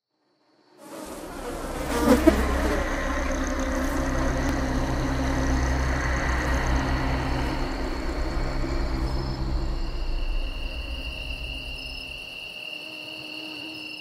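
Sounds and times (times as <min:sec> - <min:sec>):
steady high whine: 0:01.1 - 0:12.6
low rumbling drone: 0:01.2 - 0:12.4.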